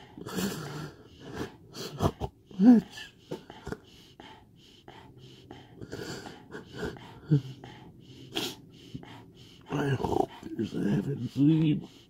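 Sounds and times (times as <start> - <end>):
man crying: 1.9 - 3.2.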